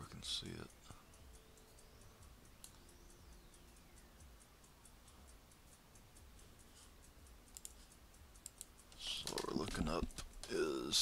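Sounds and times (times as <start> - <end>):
faint even ticking: 0.0 - 11.0
sharp clicks: 0.7 - 10.8.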